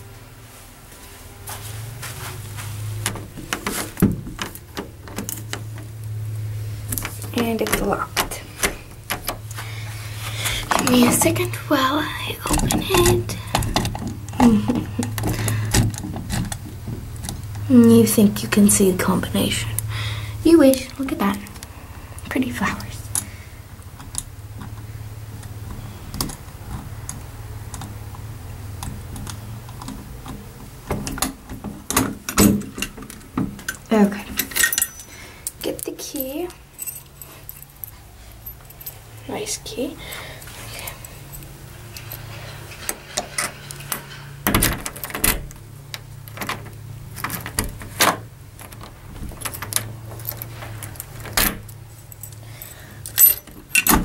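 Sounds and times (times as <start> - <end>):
steady low hum: 0.0 - 54.0
key working in door lock: 12.4 - 17.7, 34.4 - 35.1, 40.8 - 54.0
keys jangling: 34.4 - 39.3, 40.1 - 54.0.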